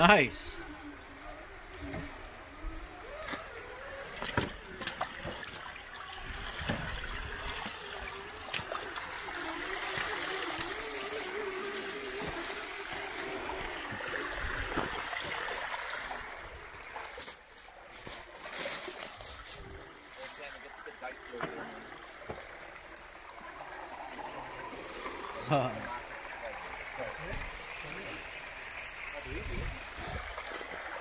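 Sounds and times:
electric motor whining: 0.6s - 5.2s, 5.8s - 15.4s
water splashing and running: 0.6s - 31.0s.

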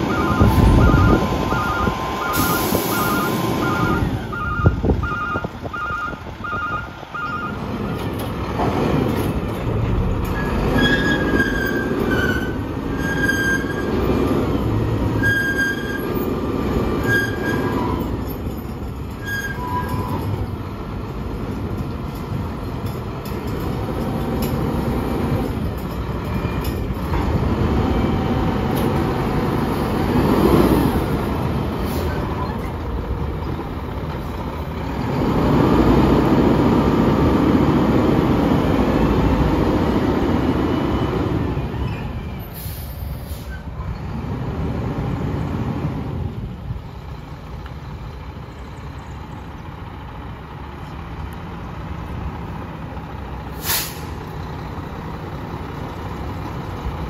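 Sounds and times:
backup alarm beeping: 0.0s - 7.6s
diesel truck engine: 0.0s - 57.0s
metallic squeals: 10.2s - 14.1s, 15.1s - 16.3s, 17.0s - 20.5s.

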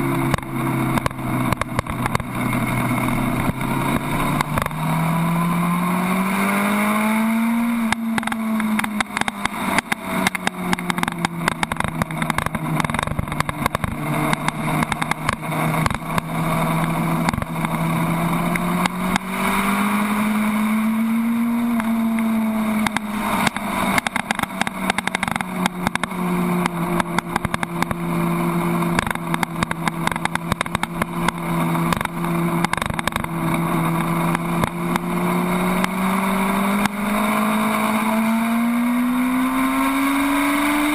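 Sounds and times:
motorcycle engine revving: 0.0s - 40.9s.

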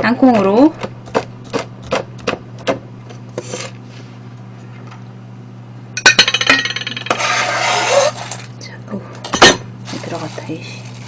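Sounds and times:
knife chopping on plastic board: 0.2s - 2.8s
nuts scraped into metal bowl: 7.1s - 8.5s.

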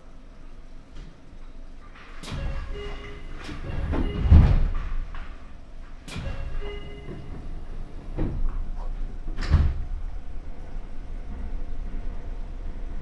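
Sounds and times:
low carriage hum: 0.0s - 13.0s
train door click: 2.2s - 5.4s, 6.0s - 10.0s
heavy door thuds: 3.7s - 5.2s.

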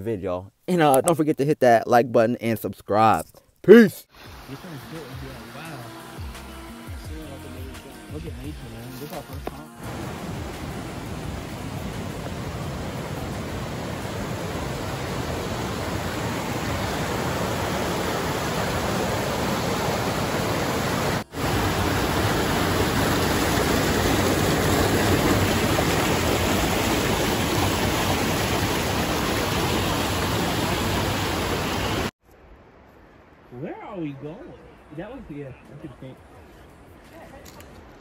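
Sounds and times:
creek rushing over boulders: 8.9s - 32.1s.

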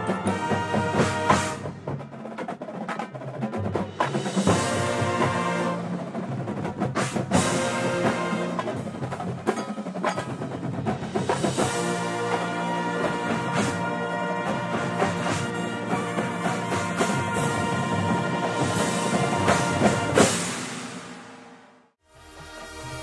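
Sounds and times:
drum and bugle corps playing: 0.0s - 21.2s
sustained brass chords: 11.6s - 20.5s.

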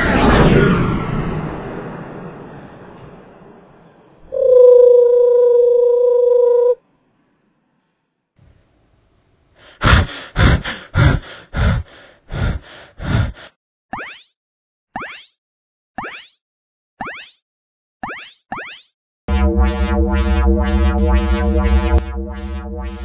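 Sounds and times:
cartoon held tone: 4.3s - 6.8s
cartoon pulses: 18.0s - 23.0s.

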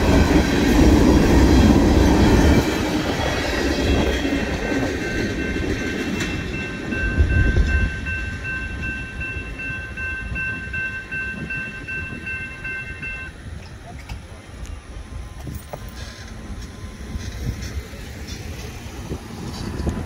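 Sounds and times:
freight train rumble: 0.0s - 20.0s
crossing bell ringing: 3.0s - 13.4s.

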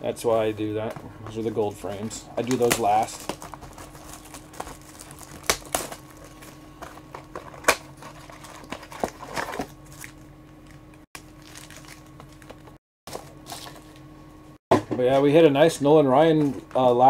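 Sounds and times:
faint steady hum: 0.0s - 17.0s
wrapping crinkling: 2.4s - 12.7s.

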